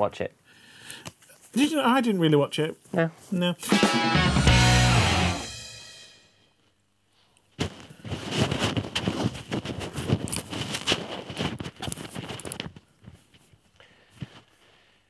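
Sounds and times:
lapel microphone rustling and scratching: 0:07.6 - 0:14.7.

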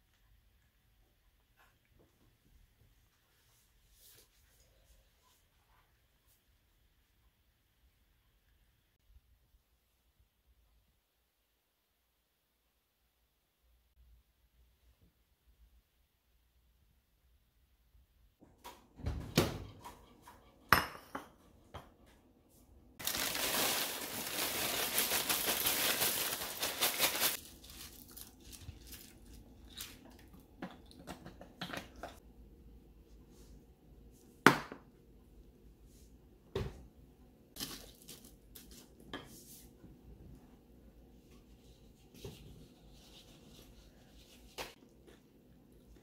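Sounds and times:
cereal rattling into bowl: 0:23.0 - 0:30.0.

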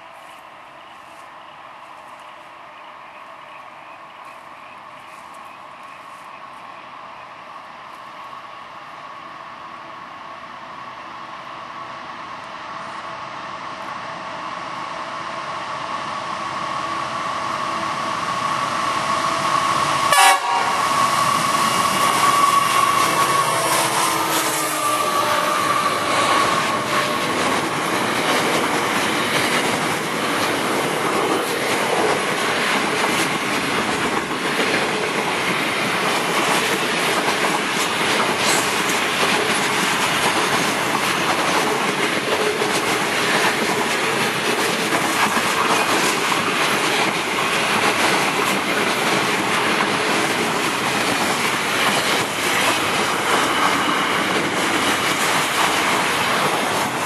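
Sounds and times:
train wheels rumbling on rails: 0:00.0 - 0:57.0
clickety-clack of rail joints: 0:21.7 - 0:57.0.

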